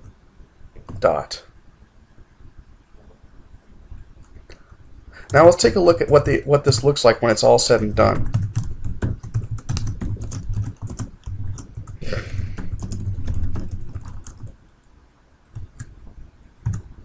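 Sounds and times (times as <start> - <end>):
fast typing on keyboard: 5.2 - 14.6, 15.5 - 16.0, 16.6 - 17.0.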